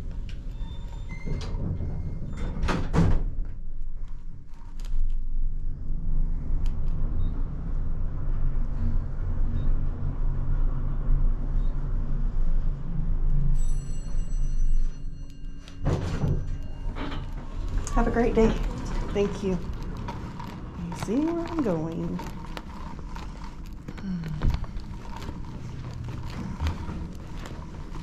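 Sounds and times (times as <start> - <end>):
elevator car humming: 5.7 - 23.5.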